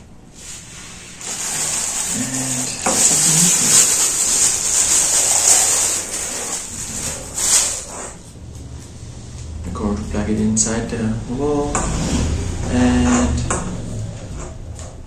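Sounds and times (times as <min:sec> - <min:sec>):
plastic wrapping crinkling: 0:01.2 - 0:08.1.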